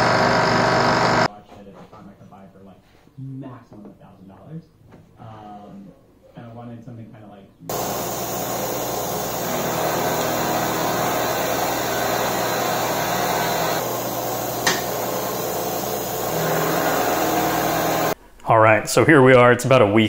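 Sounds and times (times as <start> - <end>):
milling machine drone: 0.0 - 1.3, 7.7 - 18.2.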